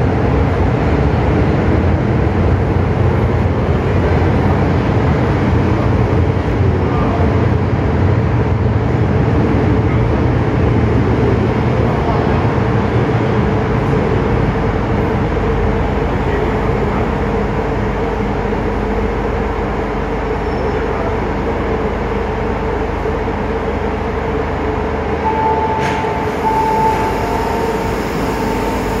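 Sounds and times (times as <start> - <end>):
train braking into station: 0.0 - 29.0
steady high tone: 25.0 - 29.0.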